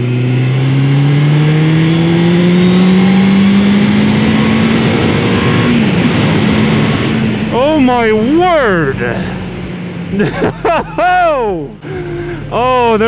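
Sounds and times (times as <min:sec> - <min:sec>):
motorcycle engine accelerating: 0:00.0 - 0:13.0
wind rush: 0:04.0 - 0:08.2.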